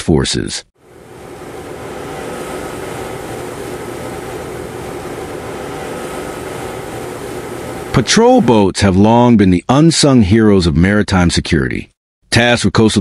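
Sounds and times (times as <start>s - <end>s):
faint thin whine: 0.8s - 8.6s
rushing water: 0.8s - 8.6s
boat engine: 0.8s - 8.7s.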